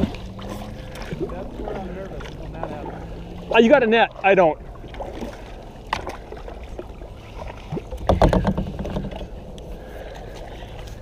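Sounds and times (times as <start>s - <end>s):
water noise: 0.0s - 11.0s
small knocks on kayak: 8.0s - 9.3s.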